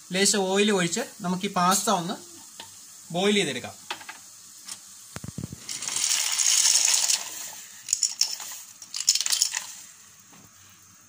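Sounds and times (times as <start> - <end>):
pasta clattering and splashing into pot: 5.6 - 9.9
pasta clinking in pot: 5.7 - 9.8.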